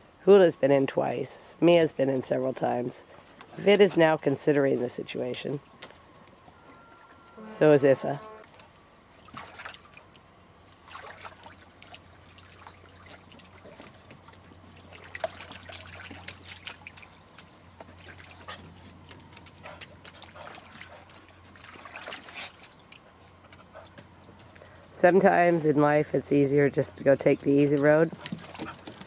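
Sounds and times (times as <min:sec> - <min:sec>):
low steady hum: 0:00.0 - 0:29.0
water splashing and trickling: 0:06.8 - 0:29.0.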